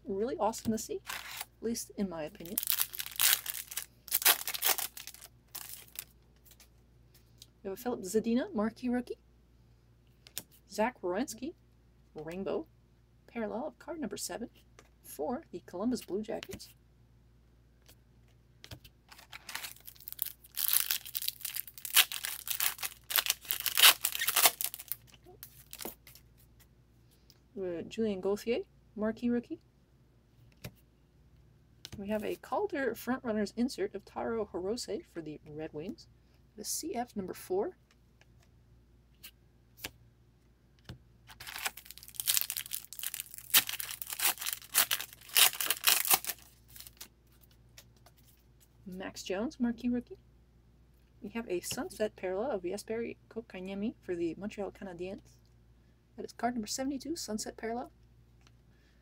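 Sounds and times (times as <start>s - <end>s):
foil wrapper crinkling and tearing: 1.0s - 1.5s, 2.4s - 6.1s, 19.1s - 26.2s, 41.3s - 47.1s.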